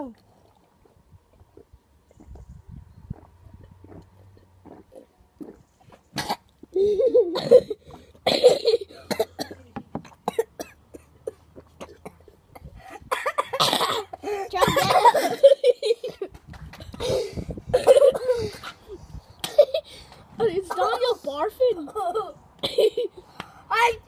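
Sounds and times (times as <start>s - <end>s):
children coughing and gagging: 6.2s - 23.2s.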